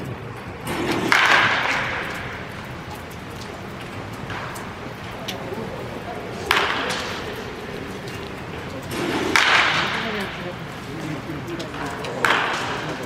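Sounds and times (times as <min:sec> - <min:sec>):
baseball bat cracking ball: 0:00.7 - 0:02.5, 0:06.4 - 0:07.3, 0:08.9 - 0:10.4, 0:11.7 - 0:13.0.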